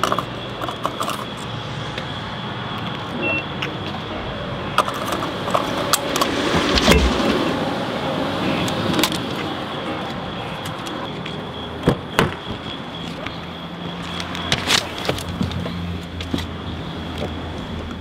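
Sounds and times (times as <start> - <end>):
handling clicks and rattles: 0.0 - 1.5, 4.8 - 7.2
faint high steady tone: 0.0 - 4.8.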